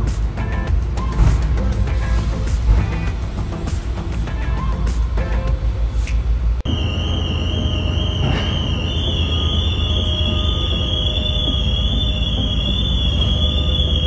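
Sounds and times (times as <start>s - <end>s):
high-pitched electronic warning tone: 6.7s - 14.0s.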